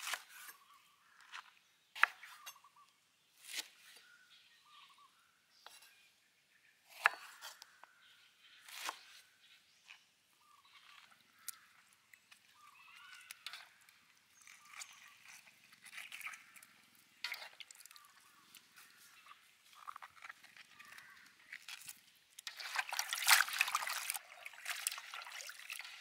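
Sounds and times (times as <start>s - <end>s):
wet greens handled in water: 10.8s - 26.0s.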